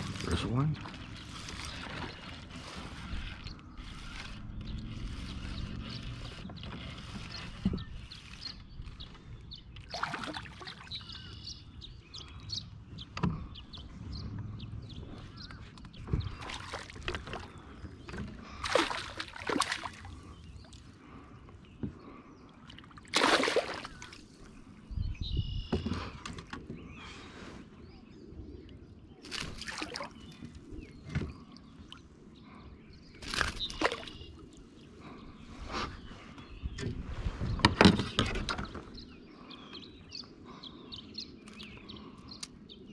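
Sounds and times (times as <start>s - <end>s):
water splashing beside kayak: 9.8s - 11.4s, 15.6s - 21.2s, 22.0s - 24.6s, 29.2s - 32.6s.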